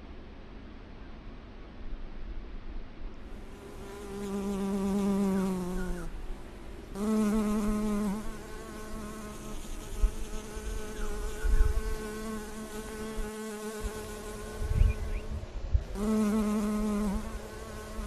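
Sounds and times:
bee buzzing: 3.4 - 6.2, 6.9 - 18.0.

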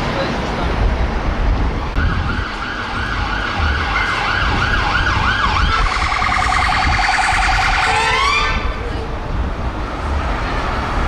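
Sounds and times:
traffic rumble: 0.0 - 11.0
electronic siren wailing: 2.0 - 8.7.

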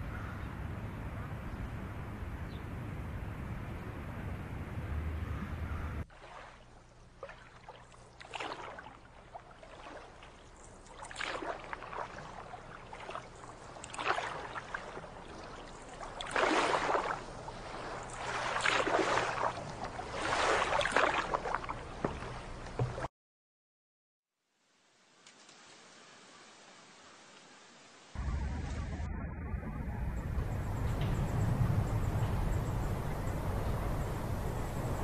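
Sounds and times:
water swishing and splashing: 5.7 - 23.1, 25.3 - 35.0.

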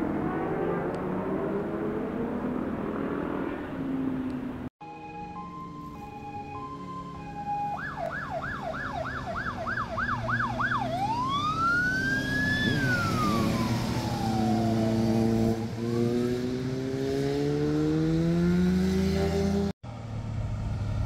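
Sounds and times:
engine revving: 0.0 - 4.0, 10.1 - 19.8
fire engine siren: 4.8 - 16.4.

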